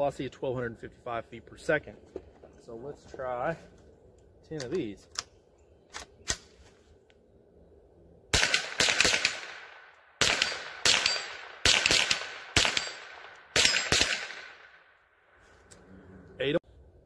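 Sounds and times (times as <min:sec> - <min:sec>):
rifle shots with echo: 0:08.3 - 0:15.0.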